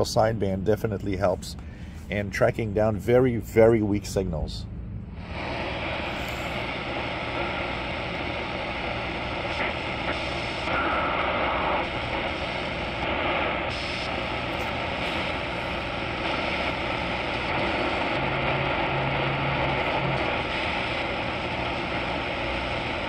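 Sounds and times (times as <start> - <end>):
shortwave radio static and hiss: 0.0 - 23.0
brief radio tone: 10.6 - 11.9.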